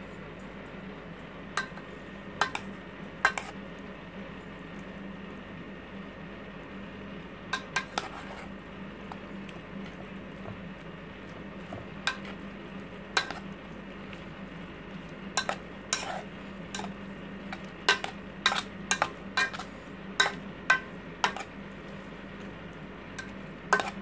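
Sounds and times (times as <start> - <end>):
metal utensil clinking in metal bowl: 15.4 - 21.5, 23.2 - 24.0.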